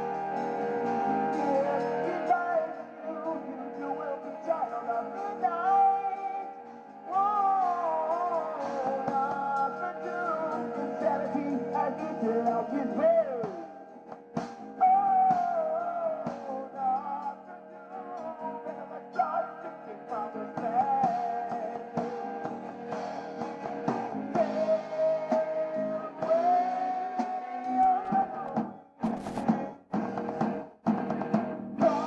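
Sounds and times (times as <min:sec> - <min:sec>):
bass: 0:00.0 - 0:06.1, 0:18.1 - 0:32.0
lead guitar line bending: 0:00.0 - 0:32.0
drums and cymbal hits: 0:04.4 - 0:17.3, 0:20.1 - 0:32.0.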